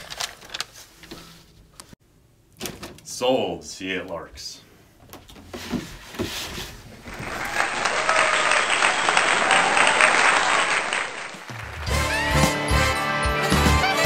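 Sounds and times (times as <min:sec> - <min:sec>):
audience applause: 0:07.0 - 0:12.4.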